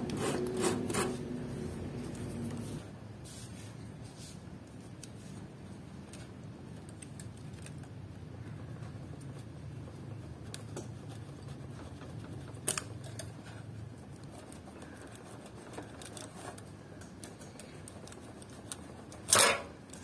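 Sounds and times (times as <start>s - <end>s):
loud scrape: 0.0s - 1.4s
steady low hum: 0.0s - 20.0s
small scratches and clicks: 4.6s - 20.0s.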